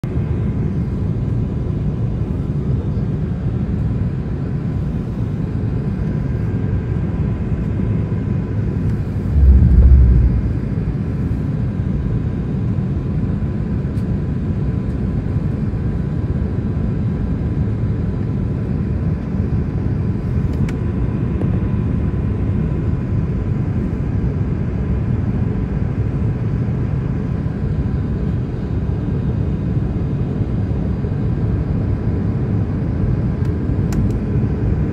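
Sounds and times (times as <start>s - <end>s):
airliner cabin noise: 8.6s - 12.1s
faint high hum: 8.6s - 12.1s
low thump: 9.2s - 11.0s.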